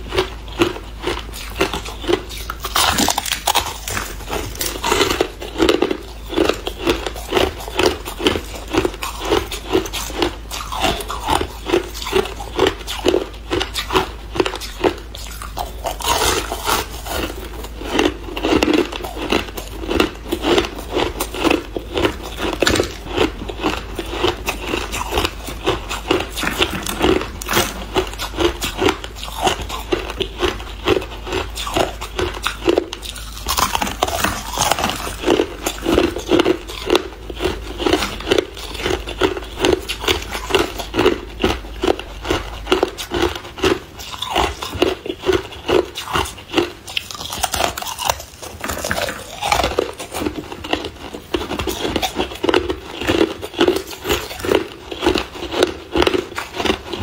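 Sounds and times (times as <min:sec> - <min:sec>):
ice crunching between teeth: 0:00.0 - 0:57.0.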